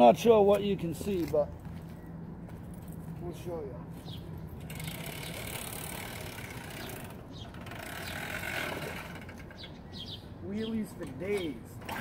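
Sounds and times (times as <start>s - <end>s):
small engine idling: 4.6s - 9.8s, 11.8s - 12.0s.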